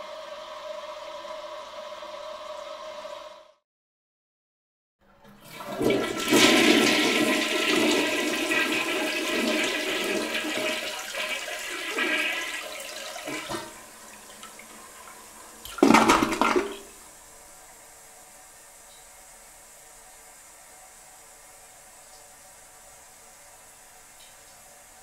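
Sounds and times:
toilet flushing: 0.0 - 3.5, 5.1 - 17.9.

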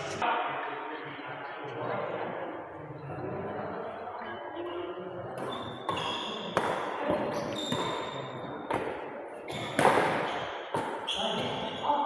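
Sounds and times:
racket striking shuttlecock: 5.4 - 8.0, 8.7 - 11.5.

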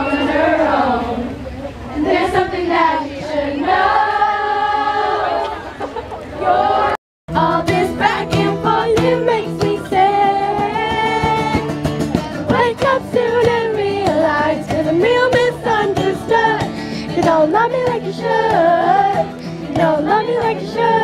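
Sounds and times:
women singing: 0.0 - 1.4, 2.0 - 5.7, 6.4 - 21.0
acoustic guitar strumming: 7.3 - 21.0.

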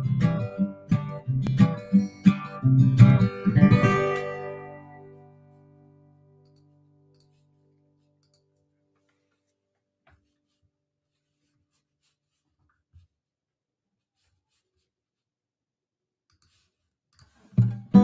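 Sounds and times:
acoustic guitar strummed: 0.0 - 6.4, 17.6 - 18.0.

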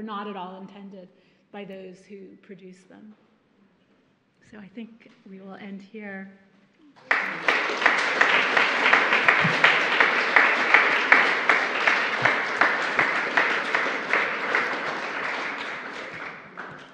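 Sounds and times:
audience applauding: 7.0 - 16.9.

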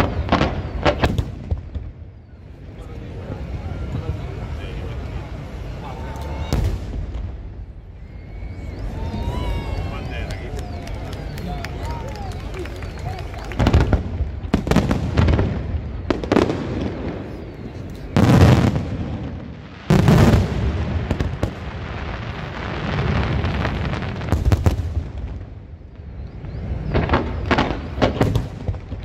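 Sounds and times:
firework shells booming: 0.0 - 2.1, 13.3 - 25.7, 26.4 - 29.0
sharp firework crackles: 0.0 - 29.0.

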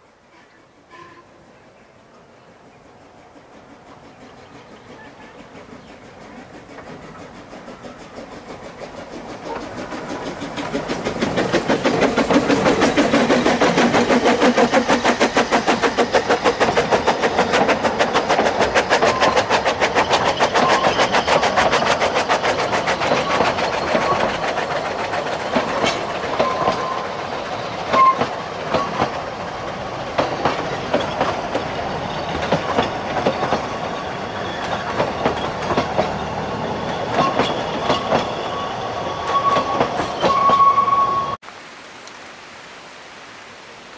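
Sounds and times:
steam locomotive chuffing: 2.4 - 41.4
wheels clicking over rail joints: 3.4 - 38.4
wheel squeals: 18.1 - 24.6, 25.3 - 29.2, 30.8 - 41.4.

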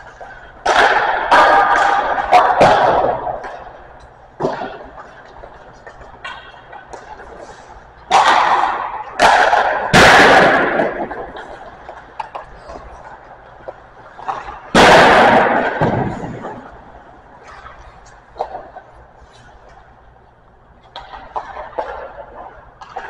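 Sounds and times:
hockey pucks striking boards: 0.0 - 19.8, 20.8 - 23.0
clicks of sticks and pucks: 0.0 - 23.0.

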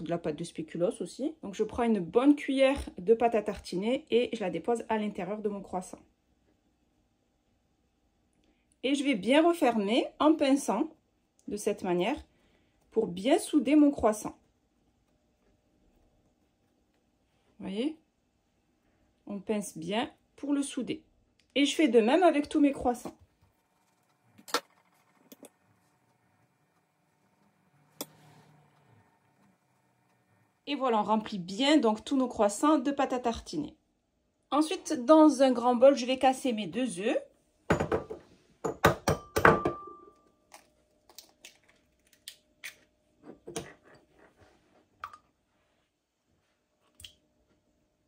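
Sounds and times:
bowl ringing: 39.2 - 40.5.

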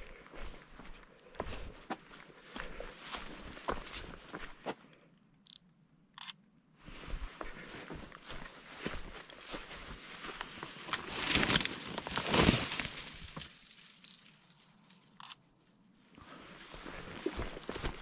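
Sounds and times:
footsteps crunching dry leaves: 2.4 - 4.5, 7.5 - 15.2, 16.5 - 18.0.

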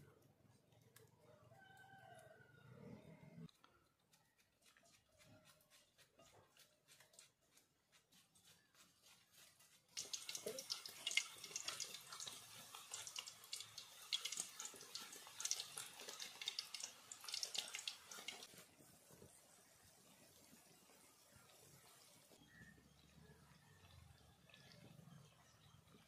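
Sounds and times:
banana slices frying in hot oil: 9.9 - 22.6.

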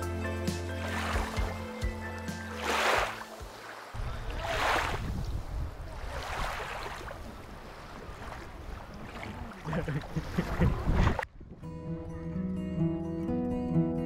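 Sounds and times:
wind buffeting microphone: 4.0 - 9.4, 10.3 - 11.7.

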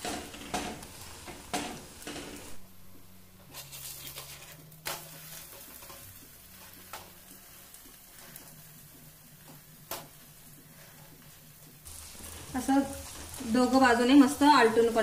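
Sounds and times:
flatbread sizzling in oil: 3.4 - 15.0.

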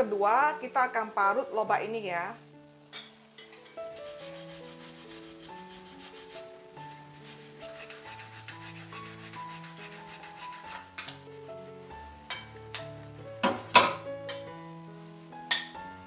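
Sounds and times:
background music: 0.0 - 16.0
radish grating rasping: 3.6 - 11.4.

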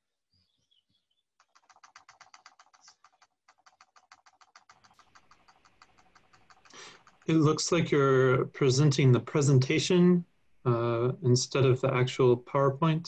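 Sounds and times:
faint rapid computer clicking: 1.4 - 10.0.

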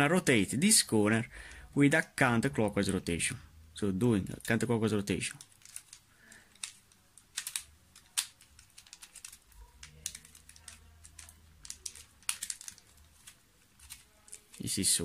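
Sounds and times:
plastic puzzle cube clicking: 5.2 - 14.8.

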